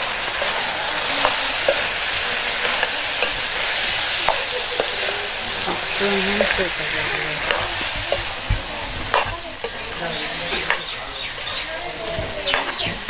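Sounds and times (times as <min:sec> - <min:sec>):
vegetables sizzling in a wok: 0:00.0 - 0:13.0
ladle knocking and scraping pan: 0:02.6 - 0:10.9.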